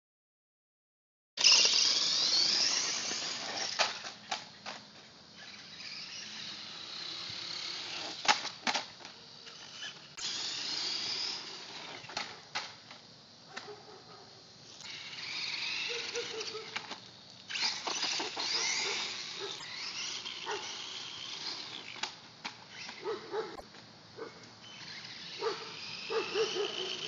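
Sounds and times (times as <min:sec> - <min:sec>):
electric motor whining: 0:01.4 - 0:04.2, 0:05.3 - 0:08.6, 0:09.4 - 0:12.3, 0:14.7 - 0:23.5, 0:24.6 - 0:27.0.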